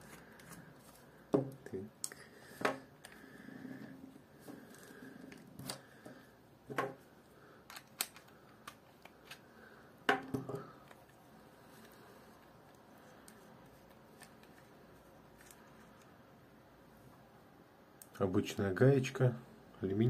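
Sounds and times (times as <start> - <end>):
small clicks and knocks of parts: 7.6 - 9.5.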